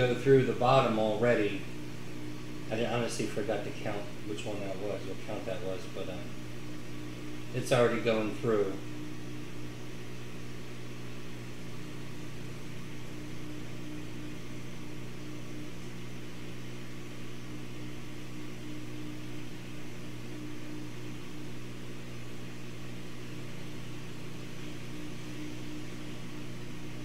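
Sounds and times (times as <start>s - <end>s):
air pump humming: 0.0s - 27.0s.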